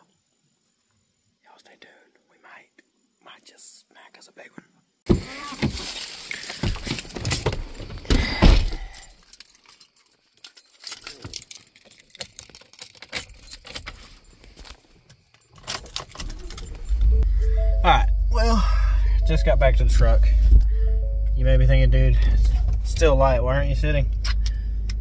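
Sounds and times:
knocks and rustling: 5.1 - 9.5
keys jangling and rattling: 5.7 - 17.2.

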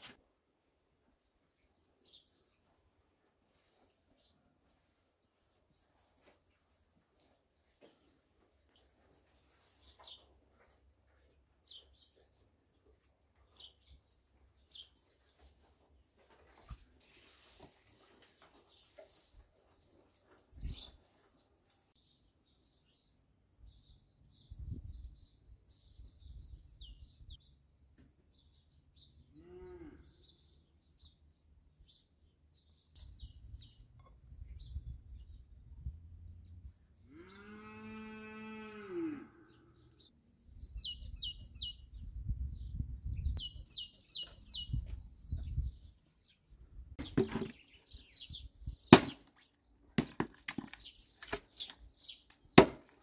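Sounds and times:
birdsong: 0.8 - 2.8, 7.8 - 53.0
cow mooing: 29.4 - 30.1, 37.1 - 39.9
axe chopping wood: 47.0 - 47.6, 48.9 - 49.4, 50.0 - 51.4, 52.6 - 53.0.

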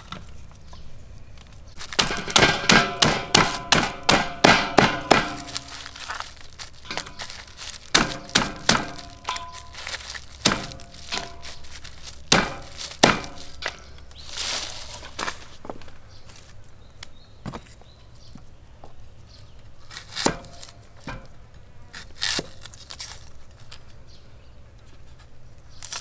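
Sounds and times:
hard knocks with ringing tone: 2.0 - 5.7.

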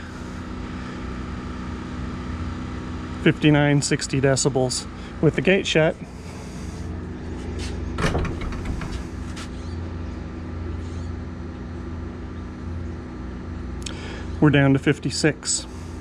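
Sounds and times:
generator humming: 0.0 - 16.0.

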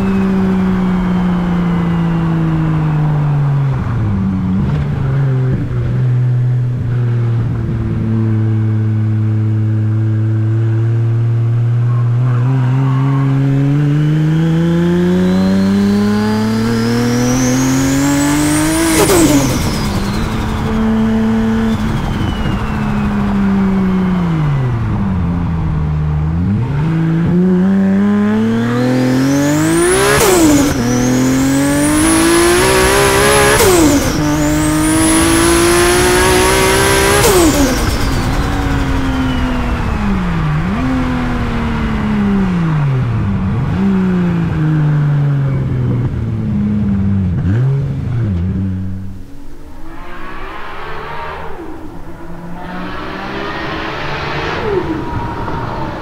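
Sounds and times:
car engine accelerating hard: 0.0 - 56.0
turbo whistle: 18.5 - 24.8.

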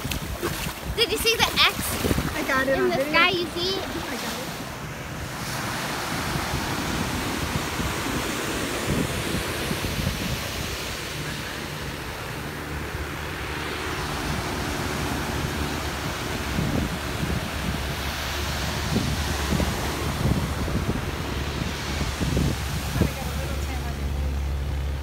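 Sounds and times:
ocean surf washing in: 0.0 - 25.0
wind buffeting microphone: 0.0 - 25.0.

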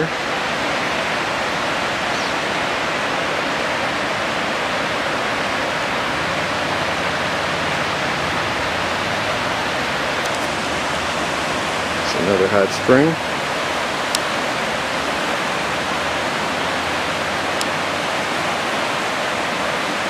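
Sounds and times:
river rushing over riffles: 0.0 - 20.0.

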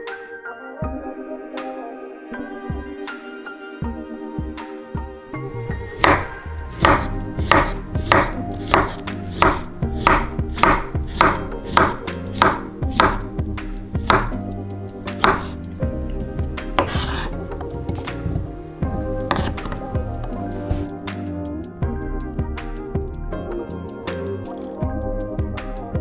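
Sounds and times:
knife slicing banana on cutting board: 6.0 - 13.3, 14.0 - 14.4, 15.1 - 15.6, 16.2 - 18.2, 19.3 - 20.9.

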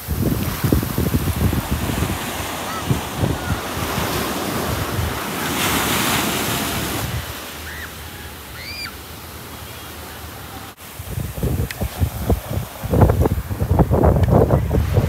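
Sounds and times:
wind buffeting microphone: 0.0 - 7.5, 10.8 - 15.0
ocean surf hissing: 0.0 - 15.0.

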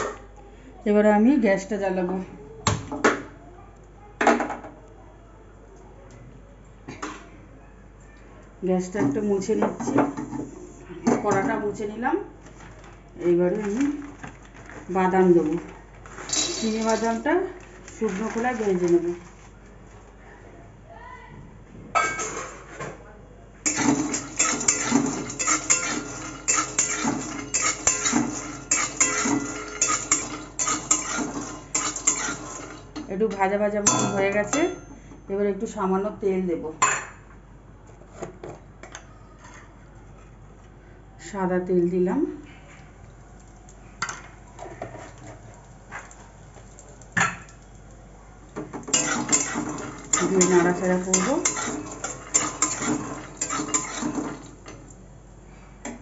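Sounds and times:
peanuts rattling in pan: 13.5 - 19.4, 23.7 - 33.0, 48.8 - 54.6
peanuts rattling: 15.5 - 19.2
spatula scraping metal wok: 23.7 - 33.0, 48.9 - 54.6.

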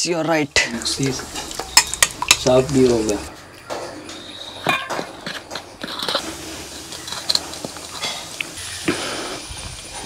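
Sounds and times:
spoon clinking and scraping metal: 4.1 - 8.4.

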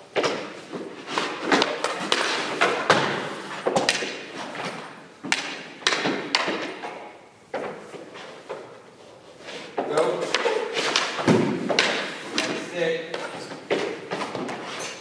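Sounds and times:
pucks knocking on rink boards: 0.1 - 4.3, 5.2 - 8.7, 9.7 - 14.7.

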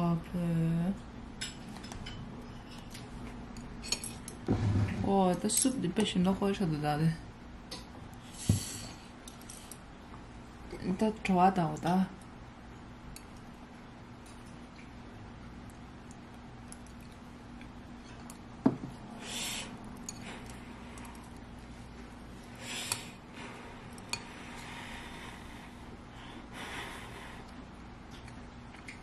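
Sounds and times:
breathy eating sounds: 19.0 - 29.0.

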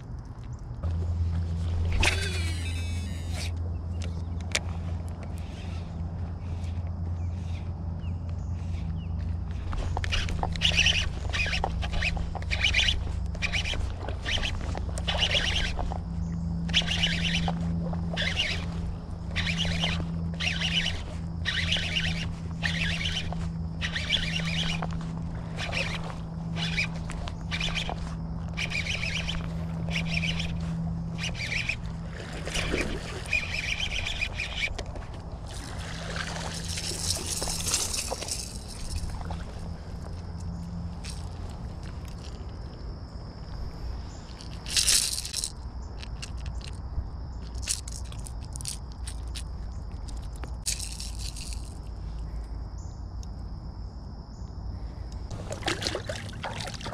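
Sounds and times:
steady low hum: 0.0 - 44.6
fishing reel cranking: 2.0 - 3.5, 10.0 - 39.2, 44.4 - 46.8, 50.1 - 51.8
water splashing: 31.2 - 34.7, 35.4 - 39.6, 55.3 - 56.9.

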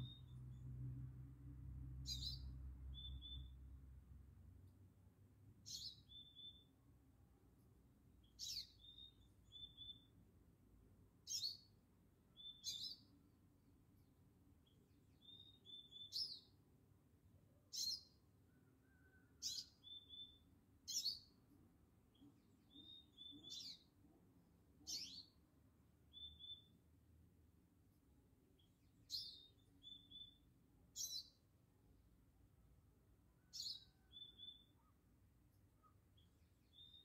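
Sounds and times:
songbird calling: 2.1 - 3.6, 5.7 - 6.7, 8.2 - 10.2, 11.3 - 11.7, 12.3 - 13.1, 15.2 - 16.5, 18.8 - 21.4, 22.6 - 23.9, 24.8 - 25.4, 26.1 - 26.8, 28.6 - 31.4, 33.4 - 35.1, 35.8 - 37.0.

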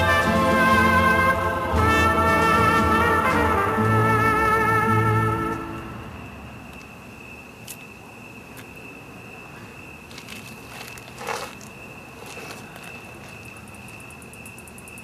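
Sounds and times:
brass orchestral music: 0.0 - 6.2
paper bag rustling: 10.0 - 13.7.

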